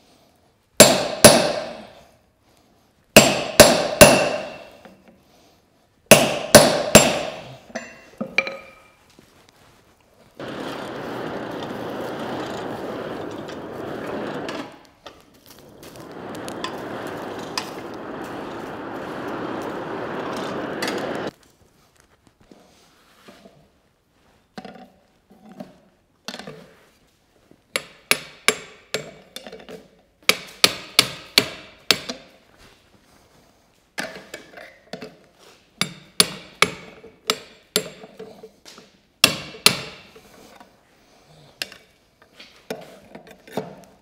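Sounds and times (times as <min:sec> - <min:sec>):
hammer ringing on anvil: 0:03.2 - 0:04.7, 0:06.1 - 0:08.8
forge fire and blower rushing: 0:10.4 - 0:21.3.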